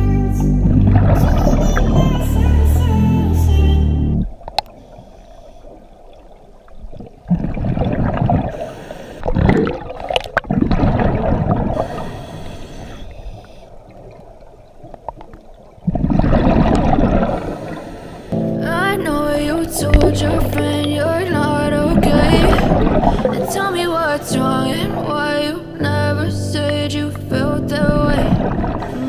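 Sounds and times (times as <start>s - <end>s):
background music: 0.0s - 4.3s, 18.4s - 29.0s
underwater water noise: 0.0s - 29.0s
scuba exhaust bubbles: 0.3s - 2.7s, 4.1s - 29.0s.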